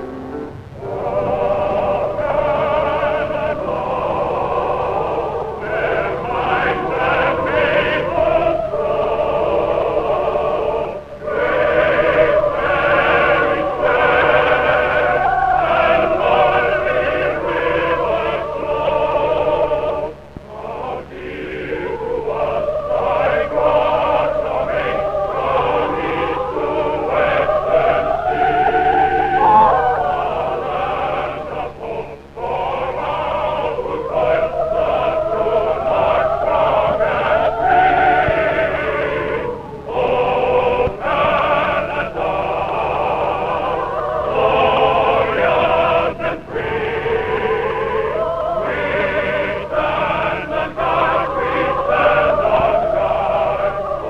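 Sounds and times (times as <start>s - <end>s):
low hum: 0.0s - 7.0s, 24.2s - 44.4s
mixed choir singing: 0.0s - 54.0s.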